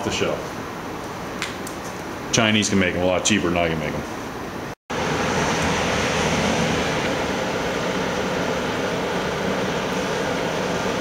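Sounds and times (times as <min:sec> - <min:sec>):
electric forge blower running: 0:04.9 - 0:11.0.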